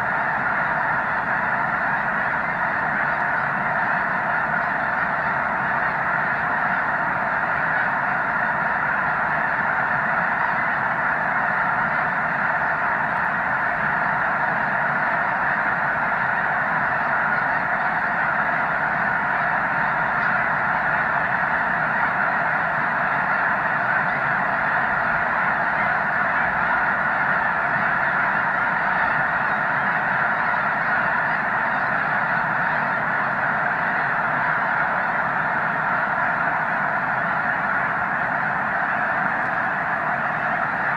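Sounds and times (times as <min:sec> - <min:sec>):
flock of geese honking: 0:00.0 - 0:40.9.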